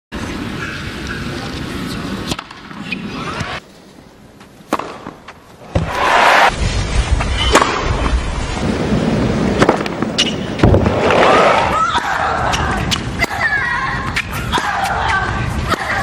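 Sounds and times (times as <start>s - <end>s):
crowd noise: 0.2s - 6.5s, 8.6s - 16.0s
racket striking tennis ball: 4.7s - 6.5s, 7.4s - 7.9s, 14.1s - 16.0s.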